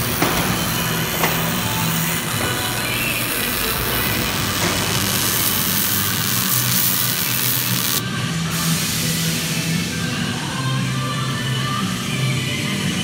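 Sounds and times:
welding arc crackling and hissing: 0:00.0 - 0:08.0.

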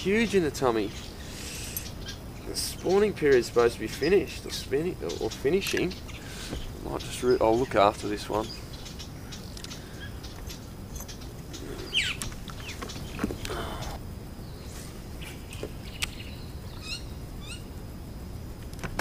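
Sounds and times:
wild birds chirping: 0:00.0 - 0:18.5
steady low rumble: 0:00.0 - 0:18.8
handling rustle: 0:10.3 - 0:14.0.

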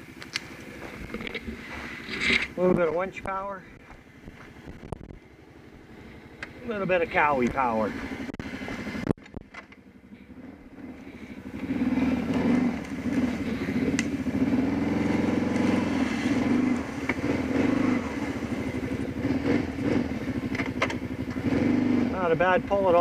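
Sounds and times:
quad engine running under load: 0:00.0 - 0:23.0.

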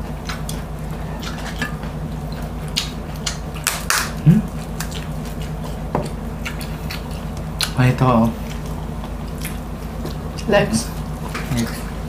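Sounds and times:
chewing with wet mouth clicks: 0:00.0 - 0:11.9
low background hum: 0:00.0 - 0:12.0.

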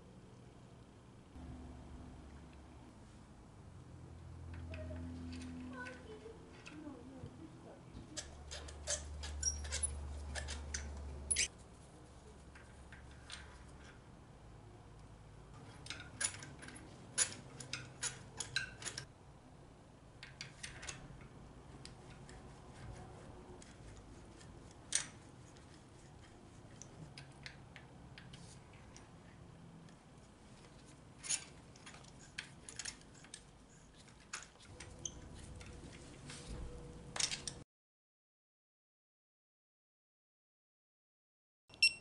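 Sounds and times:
metal tools clinking: 0:08.2 - 0:11.5.

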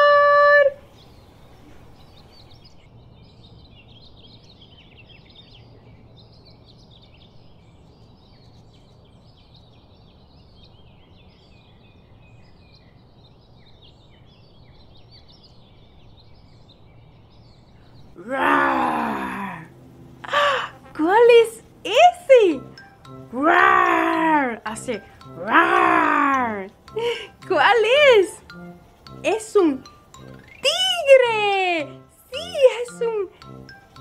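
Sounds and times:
small birds chirping and twittering: 0:00.3 - 0:34.0
faint low hum: 0:17.7 - 0:22.8
drawn-out moan-like call: 0:18.2 - 0:21.1.

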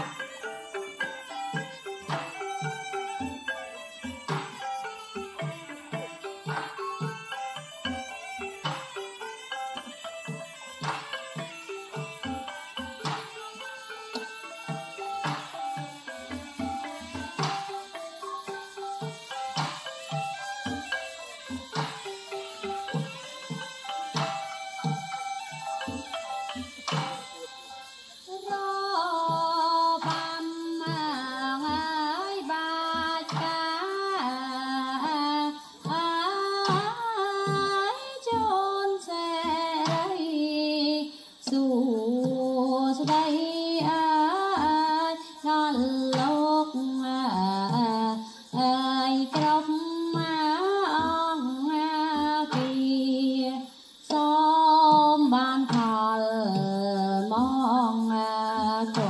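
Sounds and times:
woman singing slow melody: 0:28.2 - 0:59.0.

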